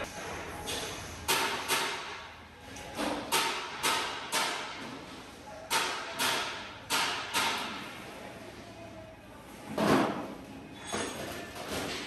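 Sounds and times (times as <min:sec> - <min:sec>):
sharp metallic bangs: 0:00.0 - 0:02.3.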